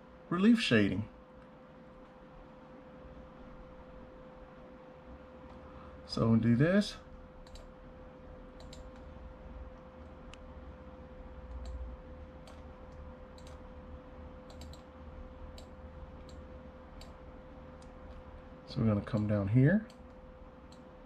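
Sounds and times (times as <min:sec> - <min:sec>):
faint steady hum: 0:00.0 - 0:21.0
computer mouse clicking: 0:07.4 - 0:07.7, 0:08.6 - 0:09.1, 0:11.5 - 0:11.8, 0:12.4 - 0:13.6, 0:14.4 - 0:14.9, 0:15.5 - 0:17.2, 0:19.9 - 0:20.9.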